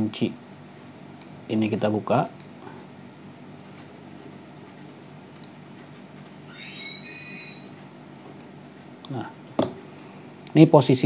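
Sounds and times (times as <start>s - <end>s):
high squeak: 6.5s - 7.8s.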